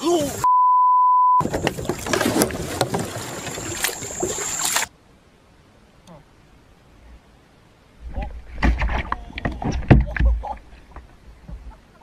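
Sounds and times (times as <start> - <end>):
censor bleep tone: 0.4 - 1.4
water splashing around a kayak: 1.4 - 5.0.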